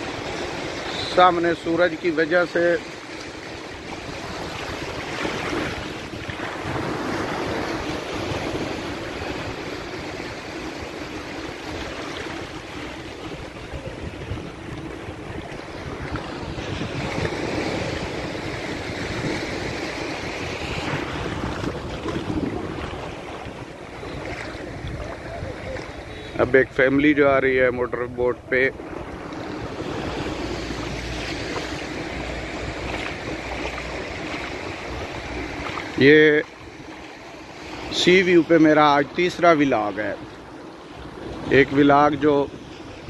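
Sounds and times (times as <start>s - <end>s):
surf washing onto sand: 0.0s - 43.0s
wind rumbling on microphone: 2.9s - 37.9s.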